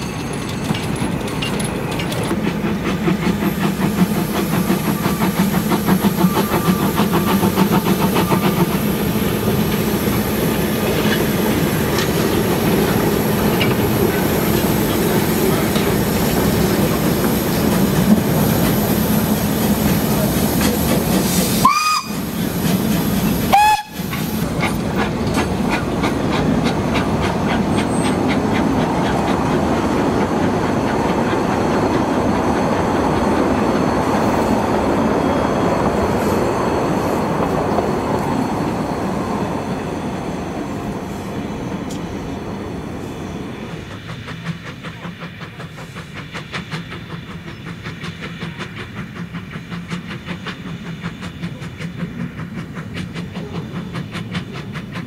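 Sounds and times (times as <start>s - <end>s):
carriages clattering on rails: 0.0s - 55.0s
steam hissing: 0.0s - 55.0s
steam locomotive exhaust beats: 0.0s - 55.0s
steam whistle blasts: 21.4s - 22.4s, 23.4s - 24.2s.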